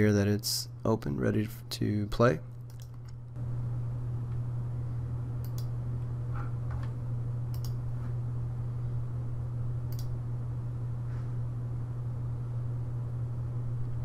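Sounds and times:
low electrical hum: 0.0 - 14.0
computer mouse clicks: 2.7 - 3.2, 5.4 - 5.7, 7.5 - 7.8, 9.9 - 10.1.

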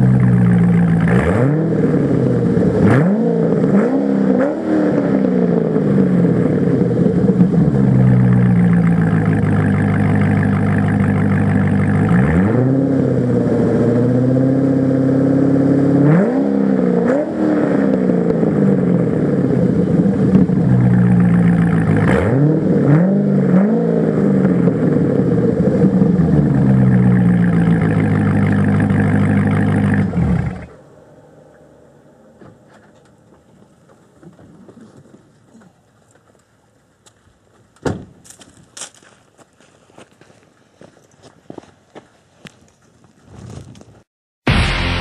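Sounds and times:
car engine idling and revving: 0.0 - 34.4.

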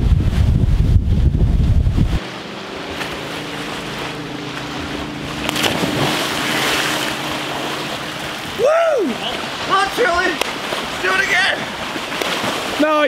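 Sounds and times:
boat motor idling: 2.3 - 11.9
person splashing into water: 2.8 - 9.7, 11.6 - 12.8.

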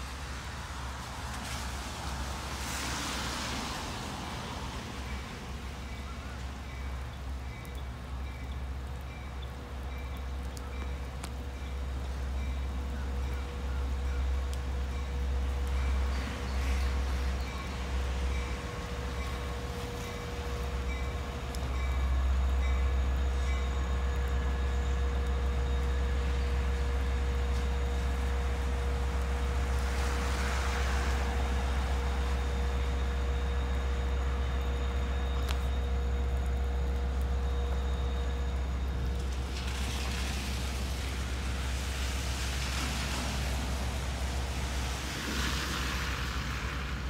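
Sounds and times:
diesel locomotive rumble: 0.0 - 47.0.

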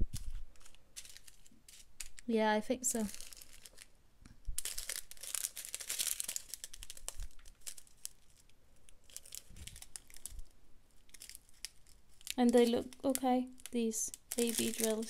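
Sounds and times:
plastic bags crinkling: 0.0 - 3.9, 4.5 - 15.0.

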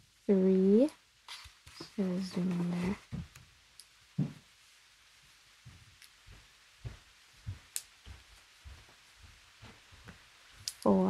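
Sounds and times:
soft thumps of hands and yarn: 1.7 - 3.4, 4.2 - 4.5
metal knitting needles clicking: 10.6 - 10.9.

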